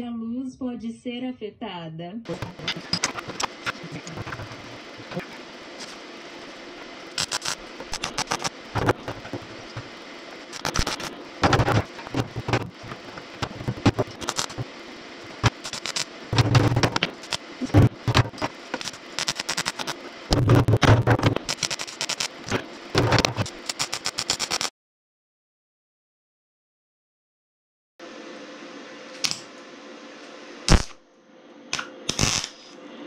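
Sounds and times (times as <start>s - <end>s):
arc welding crackling: 2.3s - 24.7s, 30.7s - 31.0s, 31.7s - 32.8s.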